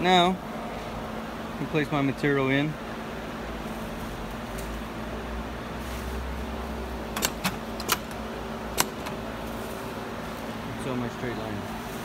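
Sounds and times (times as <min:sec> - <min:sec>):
steady low hum: 0:00.0 - 0:12.0
sharp metallic clicks: 0:07.1 - 0:09.3.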